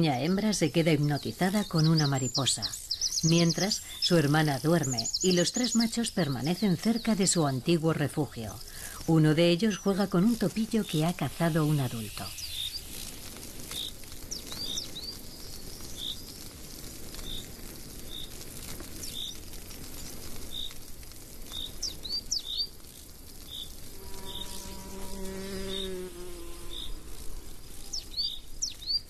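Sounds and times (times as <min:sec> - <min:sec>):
insects buzzing: 0:00.0 - 0:29.0
flying insect buzzing past: 0:08.6 - 0:29.0.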